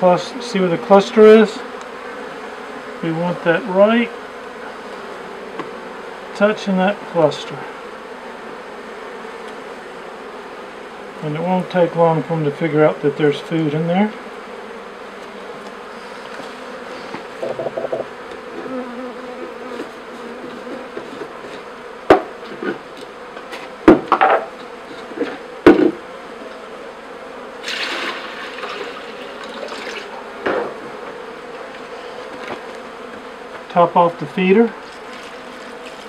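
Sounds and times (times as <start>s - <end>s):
bees humming: 0.0s - 36.0s
sharp knocks: 17.4s - 18.1s, 22.1s - 22.8s, 23.8s - 24.5s, 25.6s - 26.0s, 30.4s - 30.8s.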